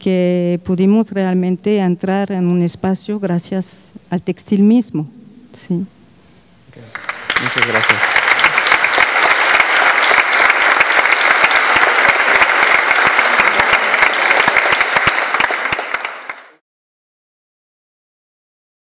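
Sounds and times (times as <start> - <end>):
audience applauding: 6.8 - 16.6.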